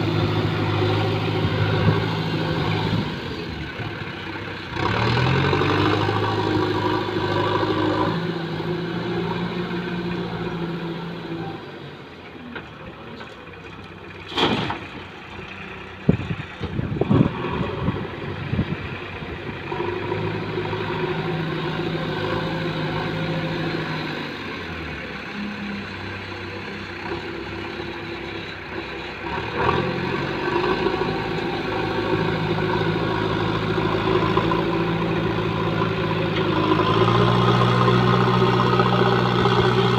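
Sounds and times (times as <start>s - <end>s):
diesel engine revving: 0.0s - 13.1s, 13.7s - 39.9s.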